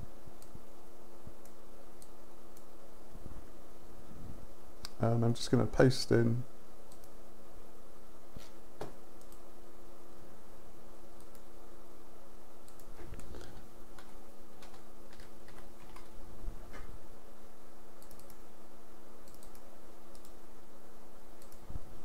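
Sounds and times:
low electrical hum: 0.0 - 22.0
keyboard and mouse clicking: 12.7 - 16.1, 18.0 - 18.4, 19.2 - 20.4, 21.4 - 21.6.

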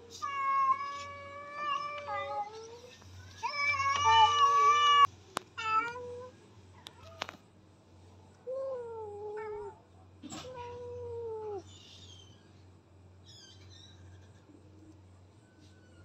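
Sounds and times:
cats yowling: 0.0 - 7.3, 8.8 - 12.3.

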